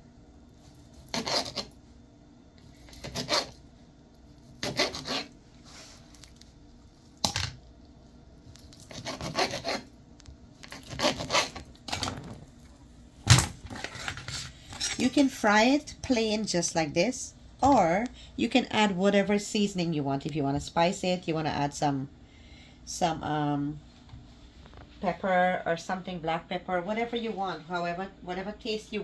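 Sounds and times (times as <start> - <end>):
knife cutting cheese on board: 2.9 - 3.6, 4.6 - 5.3, 8.8 - 9.8.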